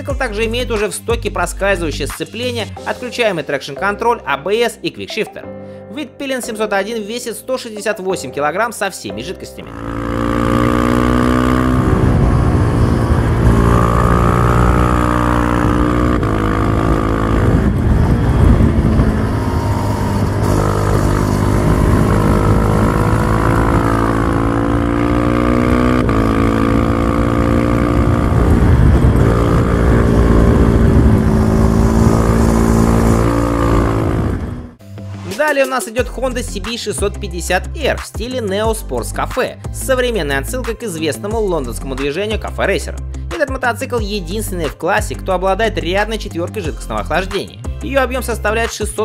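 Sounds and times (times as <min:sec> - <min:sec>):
motorcycle engine running: 0:09.6 - 0:34.8.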